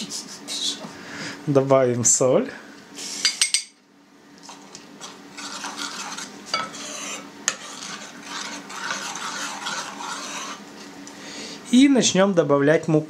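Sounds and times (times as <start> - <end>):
metal spoon scraping and clinking bowl: 5.0 - 10.6.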